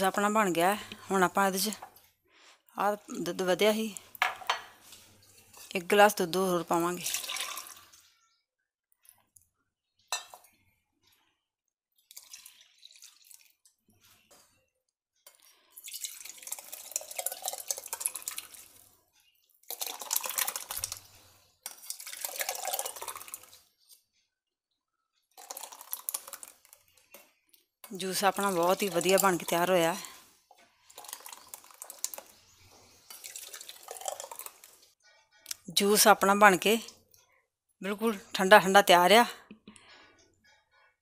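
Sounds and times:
milkshake pouring and splashing: 6.9s - 8.4s, 11.9s - 14.6s, 15.2s - 24.0s, 25.2s - 35.0s.

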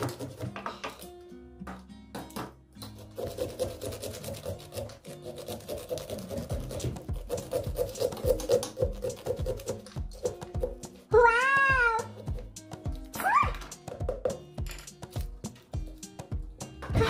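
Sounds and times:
background music: 0.0s - 17.0s
saw rasping through pumpkin: 3.0s - 9.8s.

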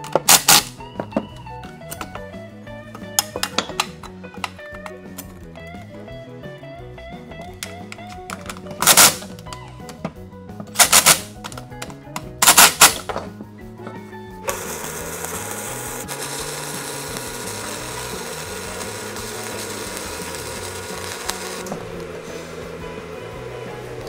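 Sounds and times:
welder hissing: 12.4s - 13.1s, 14.5s - 24.0s
cordless driver whirring: 14.5s - 24.0s.

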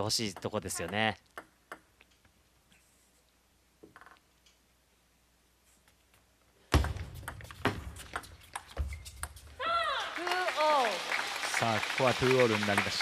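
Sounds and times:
ping pong ball clicks: 0.4s - 2.2s.

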